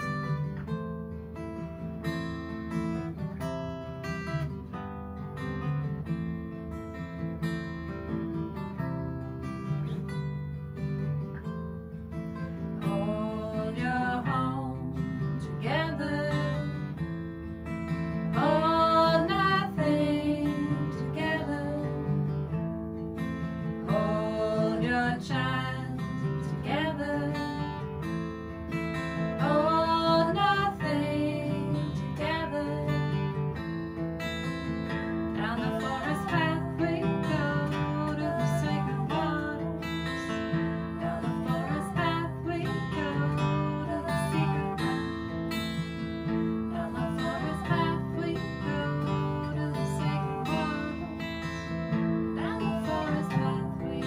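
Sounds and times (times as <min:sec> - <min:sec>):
acoustic guitars strummed and picked: 0:00.0 - 0:54.0
woman singing long notes: 0:12.8 - 0:16.8, 0:18.4 - 0:22.0, 0:35.4 - 0:40.0, 0:40.9 - 0:45.1, 0:46.7 - 0:51.3, 0:52.4 - 0:54.0.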